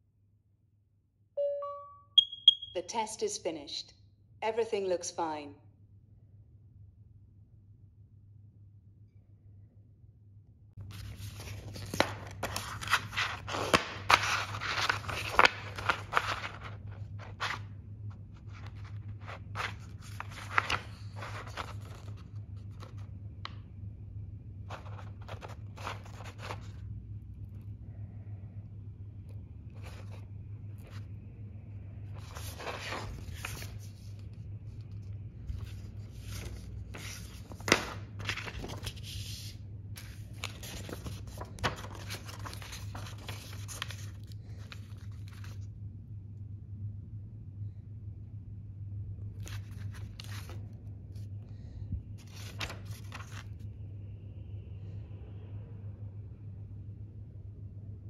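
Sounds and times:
paper pages rustling: 10.8s - 23.2s, 24.7s - 26.9s, 29.7s - 31.2s, 32.1s - 45.7s, 49.4s - 51.3s, 52.2s - 53.6s.

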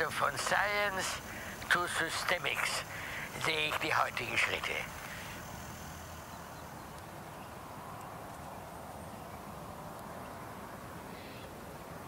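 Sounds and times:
low background hiss: 0.0s - 12.0s
faint ticks: 4.9s - 7.2s.

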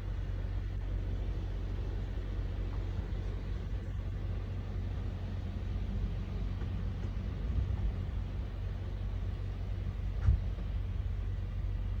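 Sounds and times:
wind buffeting microphone: 6.4s - 8.6s
wind gust thump: 10.1s - 10.7s.

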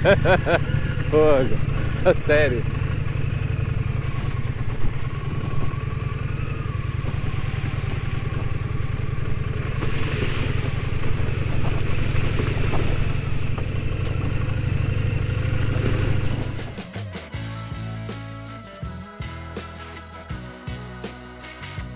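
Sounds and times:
motorcycle engine at low revs: 0.0s - 18.6s
tyre noise on dirt: 0.1s - 17.4s.

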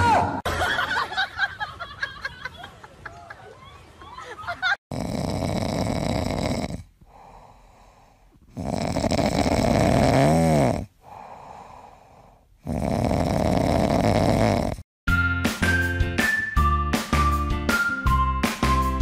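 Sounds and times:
cat snoring: 4.9s - 14.8s.

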